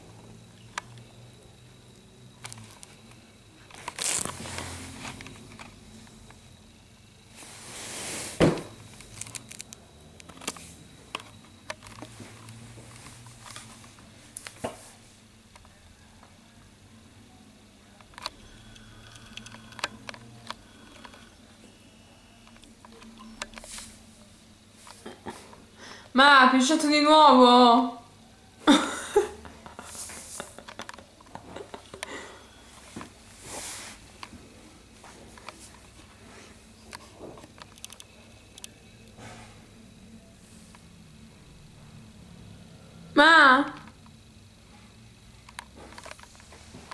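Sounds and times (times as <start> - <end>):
soft rustles: 32.8 - 34.1.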